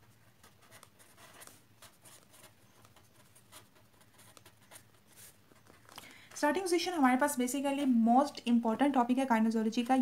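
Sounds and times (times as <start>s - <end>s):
pen scratching on paper: 0.0s - 5.8s.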